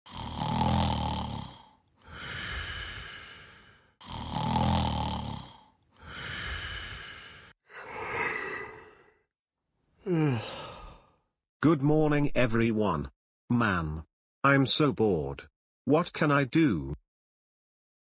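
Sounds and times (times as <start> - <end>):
cartoon snoring: 0.0 - 9.2.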